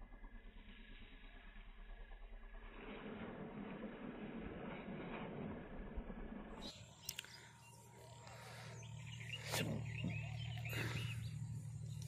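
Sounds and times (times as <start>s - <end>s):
low steady hum: 0.0s - 12.0s
birds chirping: 6.5s - 12.0s.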